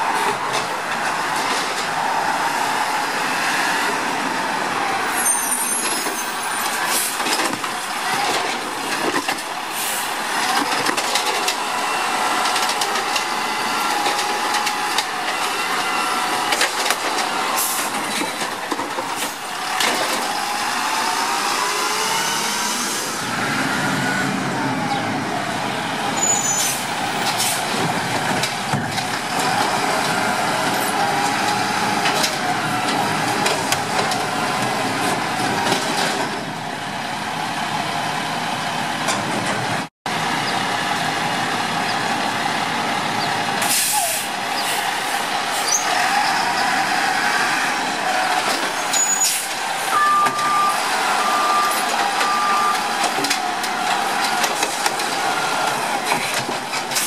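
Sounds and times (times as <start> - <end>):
hydraulics whining: 0.0 - 37.8, 40.3 - 57.0
garbage truck engine running: 0.0 - 57.0
sharp knocks of carts: 5.6 - 21.3, 26.2 - 36.6, 43.1 - 57.0.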